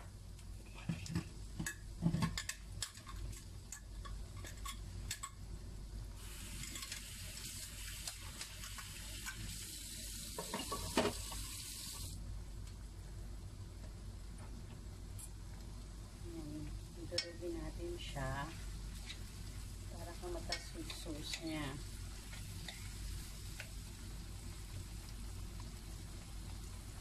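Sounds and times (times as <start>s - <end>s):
steady hiss: 5.5s - 27.0s.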